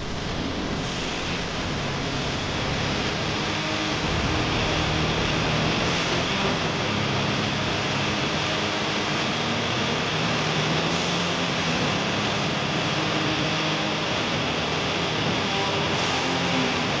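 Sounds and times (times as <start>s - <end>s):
torch flame hissing: 0.0s - 8.2s.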